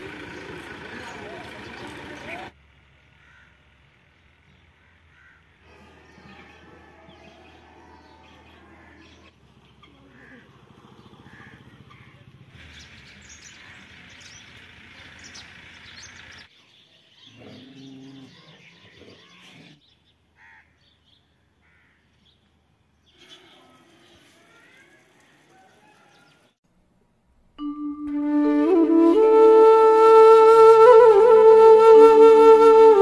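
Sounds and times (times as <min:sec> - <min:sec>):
birds chirping: 0:00.0 - 0:02.5, 0:03.2 - 0:26.6.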